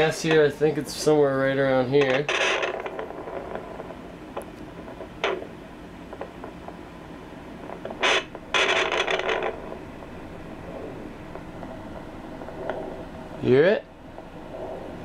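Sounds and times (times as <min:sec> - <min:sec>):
probe scraping over scales: 0:00.0 - 0:05.6, 0:07.6 - 0:15.0
doppler speaker hissing: 0:07.9 - 0:15.0.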